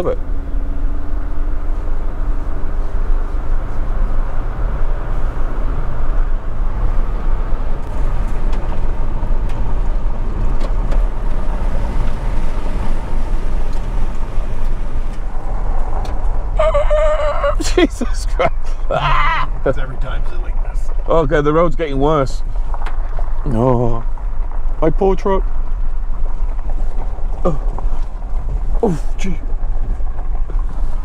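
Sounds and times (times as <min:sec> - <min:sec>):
road and wind noise: 0:00.0 - 0:31.0
tyres rumbling on gravel: 0:00.0 - 0:31.0.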